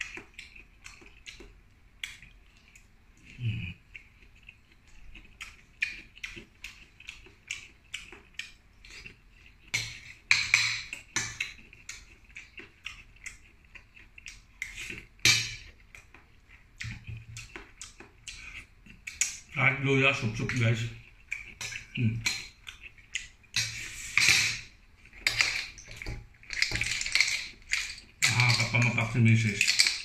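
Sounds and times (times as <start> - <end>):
seafood shells cracking: 24.4 - 30.0
shells clinking on plate: 29.5 - 30.0.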